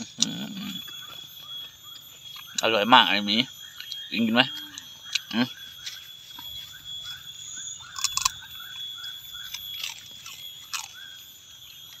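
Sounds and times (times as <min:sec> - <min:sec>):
quiet chewing: 0:00.0 - 0:02.8, 0:03.6 - 0:12.0
crispy snack crunching: 0:07.8 - 0:12.0.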